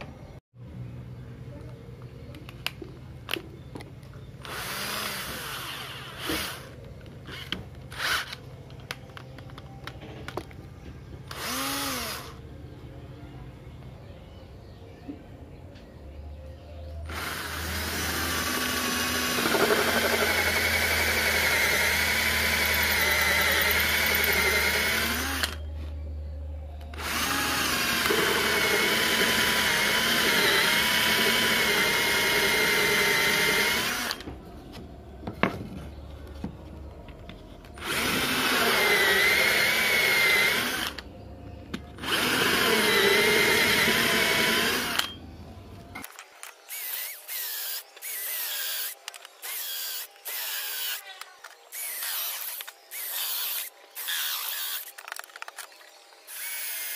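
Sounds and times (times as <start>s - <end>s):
drill hole saw cutting wood: 17.1s - 25.6s, 27.0s - 34.2s, 37.8s - 41.0s, 42.0s - 45.1s, 46.7s - 51.0s, 51.7s - 55.0s, 56.3s - 56.9s.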